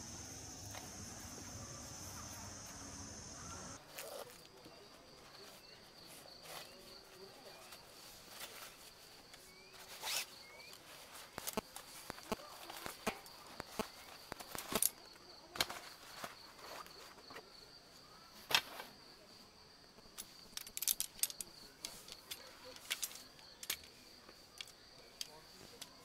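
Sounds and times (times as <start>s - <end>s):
high insect trill: 0.0s - 4.4s.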